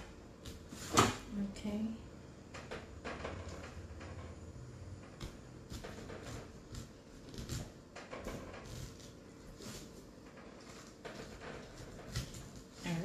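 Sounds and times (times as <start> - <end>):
knife cutting pineapple: 5.2 - 10.0.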